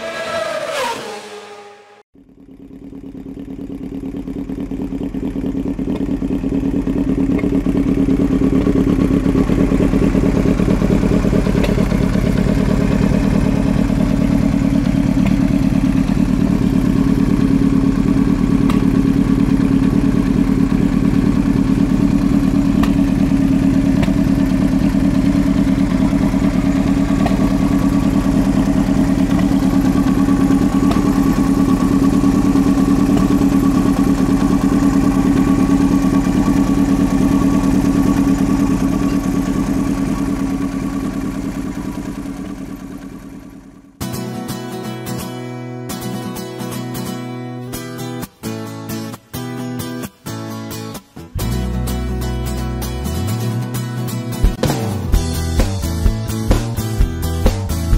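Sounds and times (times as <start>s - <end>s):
motorcycle engine idling: 2.2s - 45.0s, 51.4s - 57.9s.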